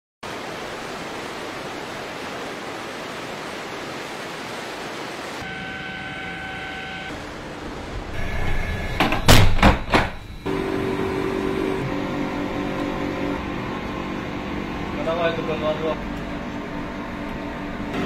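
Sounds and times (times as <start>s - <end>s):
churning sea water: 0.2s - 18.0s
machinery hum with high whine: 5.4s - 18.0s
loud sharp knocks: 9.0s - 10.2s.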